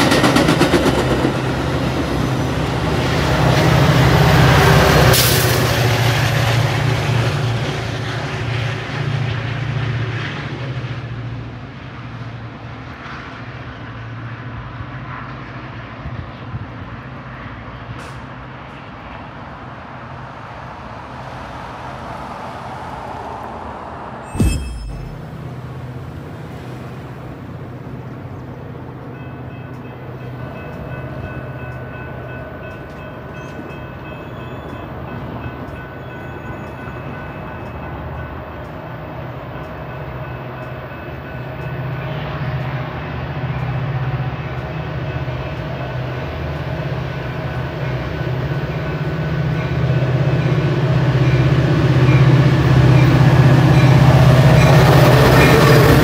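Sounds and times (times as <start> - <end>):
diesel locomotive engine drone: 0.0 - 56.0
steady higher tones: 24.3 - 25.5.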